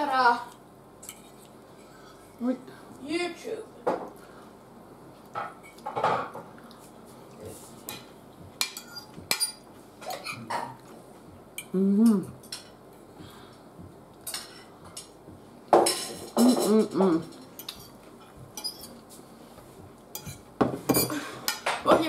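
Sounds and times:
cutlery clinking on plates: 7.9s - 10.8s, 14.2s - 19.0s, 20.2s - 22.0s.

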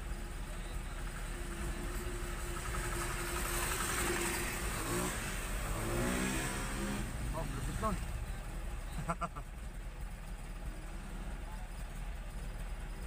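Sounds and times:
small cart engine passing: 1.0s - 8.3s.

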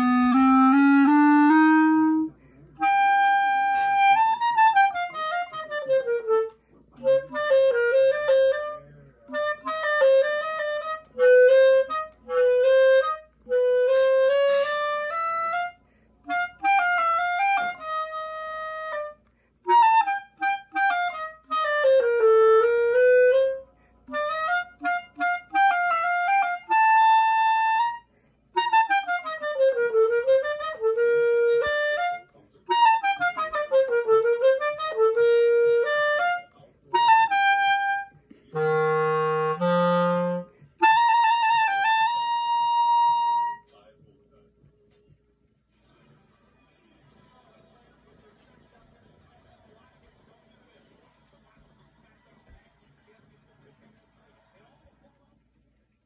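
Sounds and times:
woodwind slow melody: 0.0s - 43.7s.

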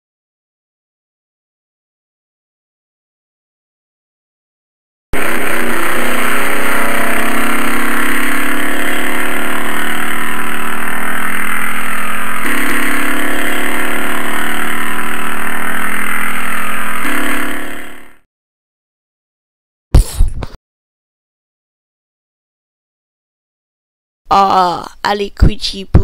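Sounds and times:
loud vehicle engine: 5.2s - 18.2s.

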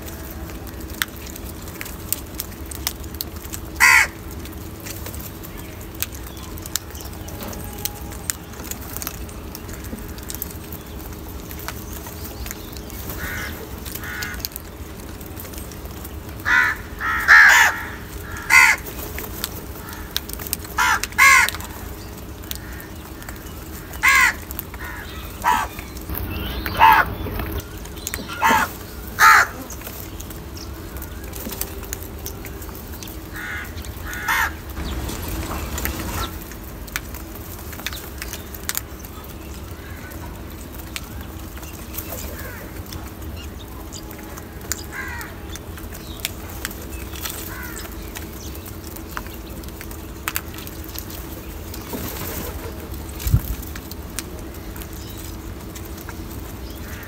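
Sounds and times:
crows cawing: 3.7s - 4.4s, 13.2s - 14.8s, 16.4s - 19.0s, 19.6s - 30.0s, 30.8s - 36.6s, 39.6s - 40.5s, 42.1s - 42.9s, 44.3s - 45.6s, 47.2s - 48.1s, 56.7s - 57.0s.

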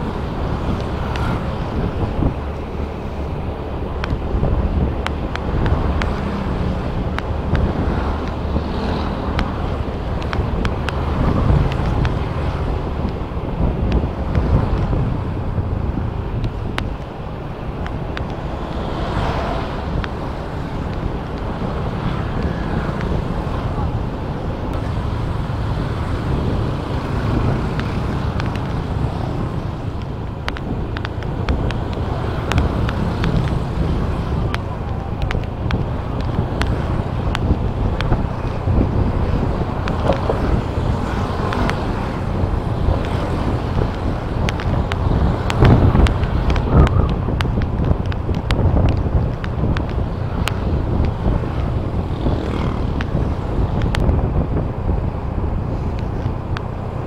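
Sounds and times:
sharp ticks and clicks: 0.0s - 57.0s
vehicle running rumble: 0.0s - 57.0s
wind buffeting microphone: 0.0s - 57.0s
sharp clicks: 3.9s - 15.0s.

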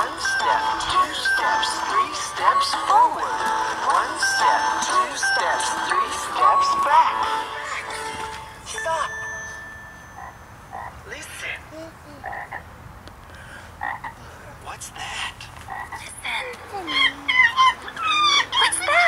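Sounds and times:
frogs croaking: 10.2s - 12.8s, 13.5s - 14.3s, 15.0s - 19.0s.

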